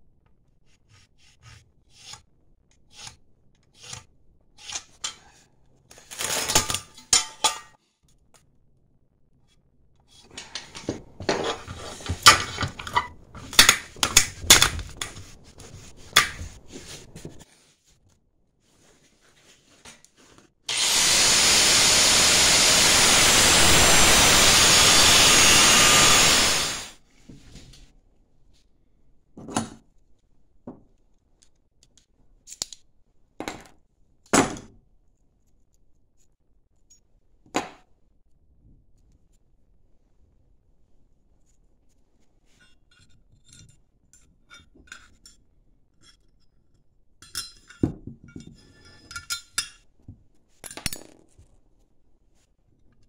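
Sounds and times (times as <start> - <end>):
angle grinder cutting steel: 20.7 - 27.0.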